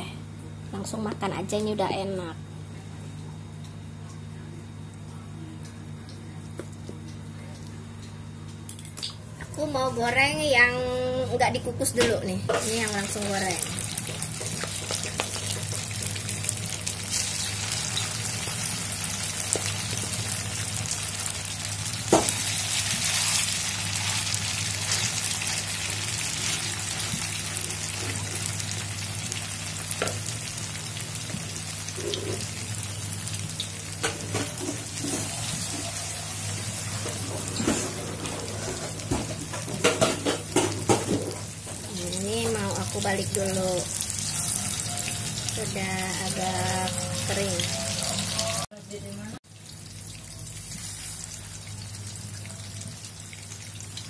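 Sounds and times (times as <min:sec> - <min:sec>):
frying oil sizzling: 0:11.4 - 0:54.0.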